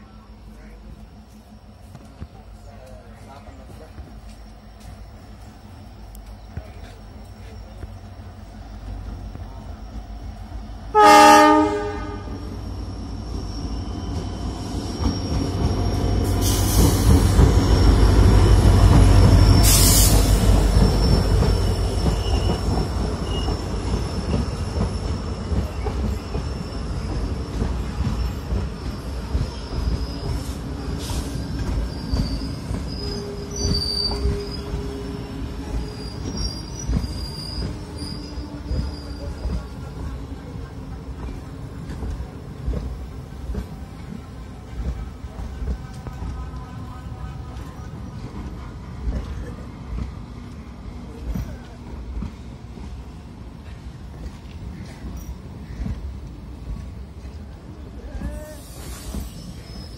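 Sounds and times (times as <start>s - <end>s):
locomotive rumble: 0.0s - 59.9s
train coaches rattling: 0.0s - 59.9s
train horn blast: 10.9s - 12.4s.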